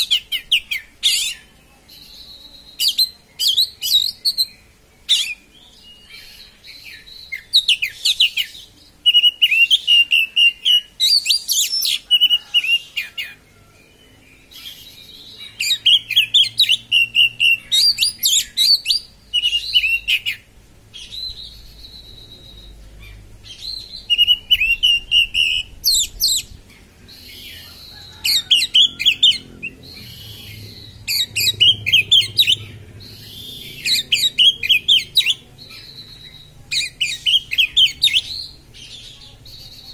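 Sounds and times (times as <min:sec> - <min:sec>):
bird singing shrill chattering notes: 0:14.3 - 0:39.9.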